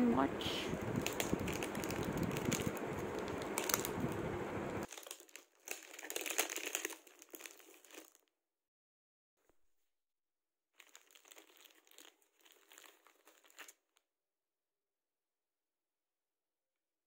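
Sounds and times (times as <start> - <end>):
plastic film crinkling: 0.6 - 8.3, 10.8 - 13.9.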